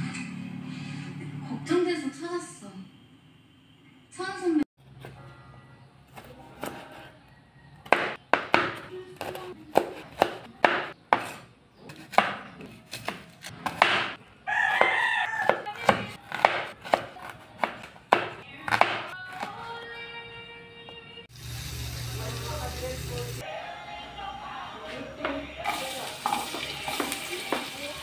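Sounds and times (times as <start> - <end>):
knife chopping on cutting board: 7.9 - 14.2, 14.8 - 19.1.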